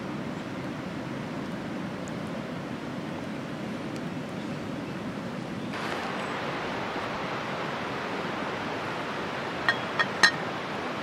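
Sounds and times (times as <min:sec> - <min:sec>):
water boiling in a pot: 0:05.8 - 0:11.0.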